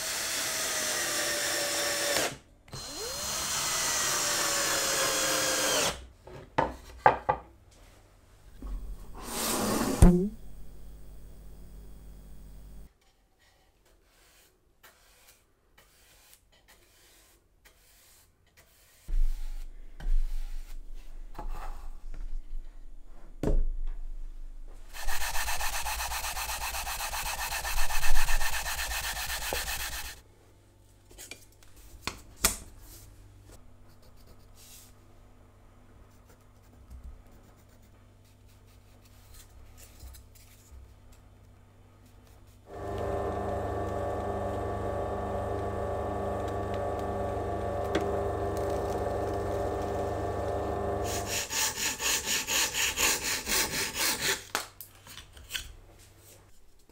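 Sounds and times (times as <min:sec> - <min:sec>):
sandpaper rubbing wood: 0:24.9 - 0:30.2, 0:51.0 - 0:54.4.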